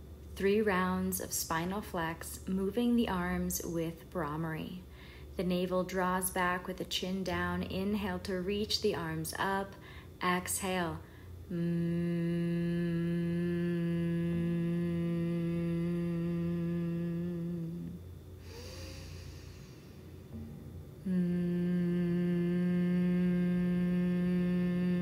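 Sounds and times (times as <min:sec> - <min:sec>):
woman humming on one pitch: 0:11.5 - 0:19.9, 0:21.0 - 0:25.0.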